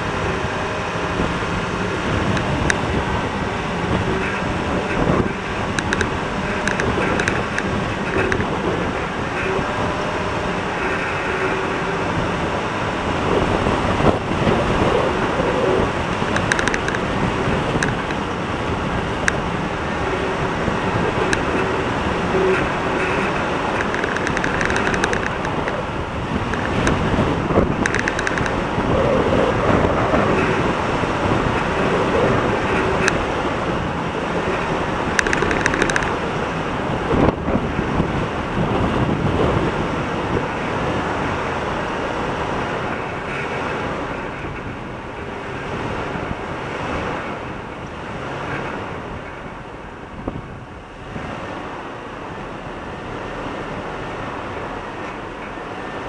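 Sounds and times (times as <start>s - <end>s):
vehicle engine: 0.0s - 49.4s
light clicks and rattles: 4.0s - 9.6s, 16.1s - 17.2s, 21.0s - 25.8s, 26.4s - 28.6s, 34.4s - 36.2s.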